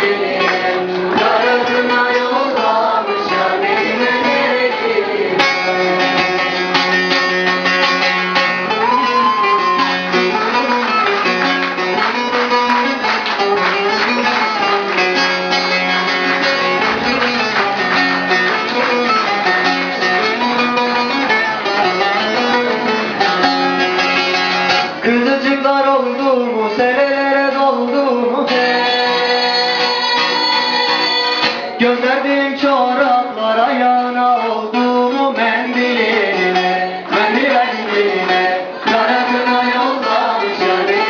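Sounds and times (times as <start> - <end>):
plucked long-necked lute: 0.2 - 25.1.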